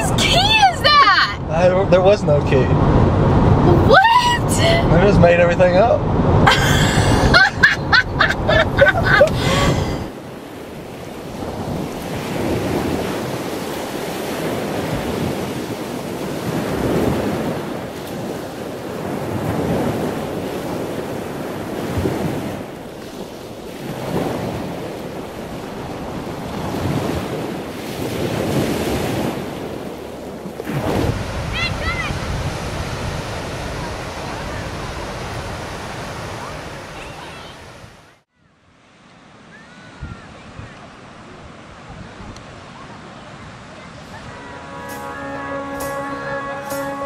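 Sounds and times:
ocean surf breaking: 0:00.0 - 0:47.0.

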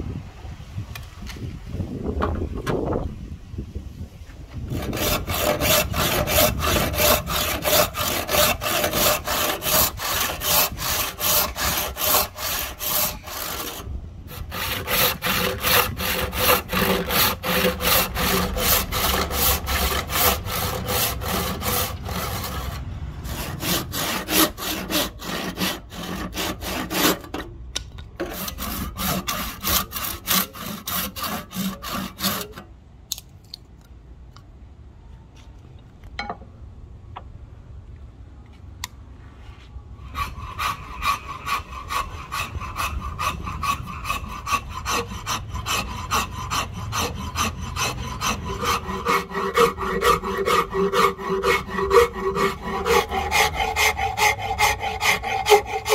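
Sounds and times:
hand saw cutting wood: 0:04.6 - 0:27.5, 0:28.2 - 0:32.7, 0:40.0 - 0:55.9.

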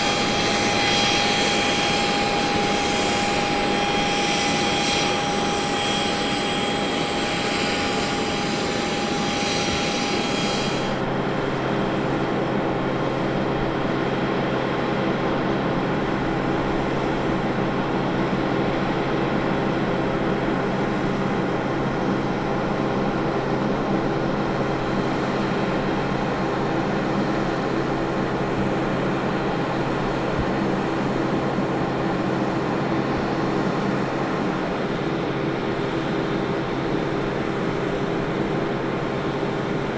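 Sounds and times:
high whine: 0:00.0 - 0:11.0
machinery hum: 0:00.0 - 0:13.9.

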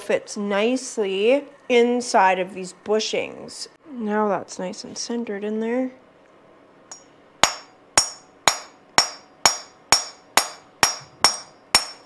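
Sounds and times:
hammer tapping steel: 0:06.9 - 0:12.0.

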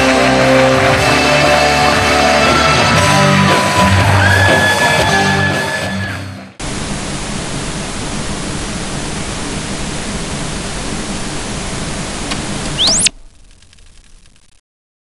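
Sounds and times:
rising whine: 0:06.6 - 0:14.6
television static hiss: 0:06.6 - 0:14.6.

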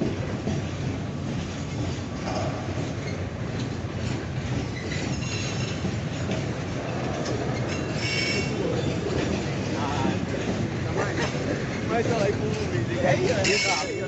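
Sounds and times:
freight wagons rumbling: 0:00.0 - 0:14.0
high wheel squeals: 0:04.7 - 0:05.9, 0:07.6 - 0:09.0.

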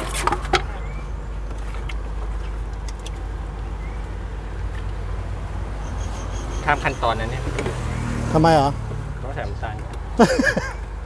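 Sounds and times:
low motor rumble: 0:00.0 - 0:11.0
short rising chirps: 0:05.8 - 0:07.2.

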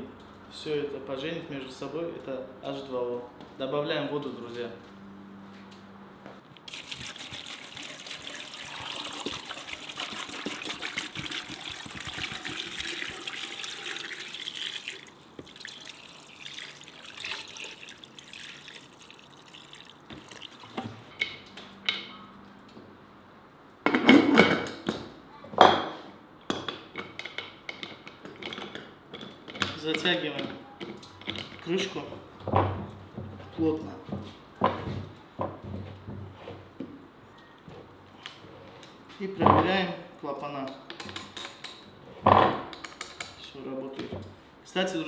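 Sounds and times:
water pouring from plastic bottle: 0:06.6 - 0:20.8.

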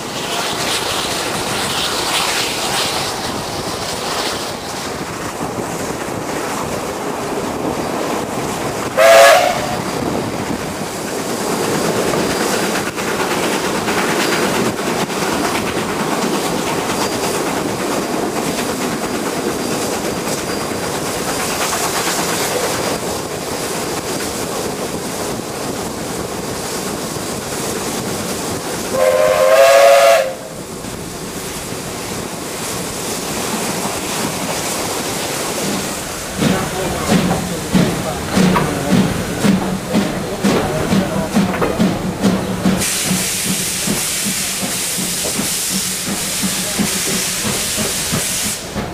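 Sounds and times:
train running at speed: 0:00.0 - 0:48.9
steam locomotive whistle: 0:09.0 - 0:09.8, 0:28.9 - 0:30.5.

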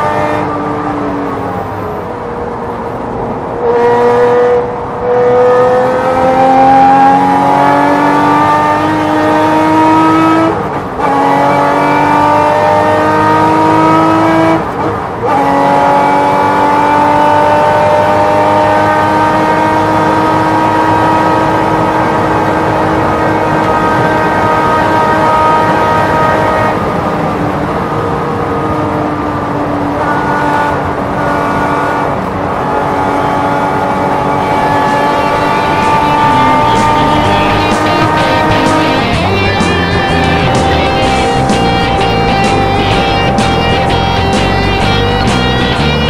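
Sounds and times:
race car engine at full throttle: 0:00.0 - 0:46.0
wind and road noise: 0:00.0 - 0:46.0
gear upshifts: 0:34.0 - 0:46.0.

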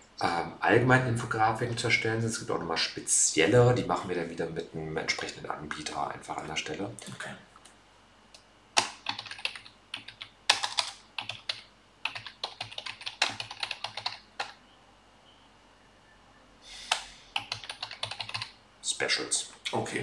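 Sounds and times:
typing on computer keyboard: 0:08.8 - 0:14.6, 0:16.9 - 0:18.6.

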